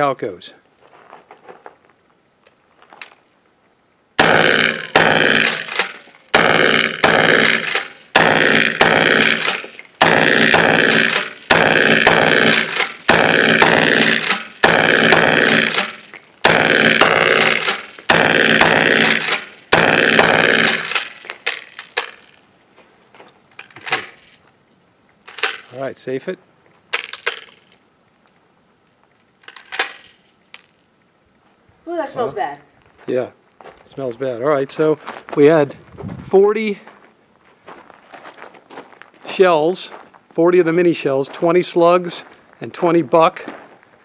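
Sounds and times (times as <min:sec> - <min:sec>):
quieter sharp sounds: 0:04.2 - 0:22.4
shotgun shots: 0:04.2 - 0:22.4, 0:23.7 - 0:24.3.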